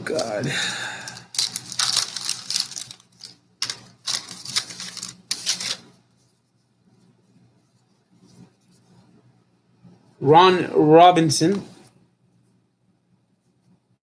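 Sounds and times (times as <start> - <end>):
wrapper crinkling and tearing: 1.0 - 6.0.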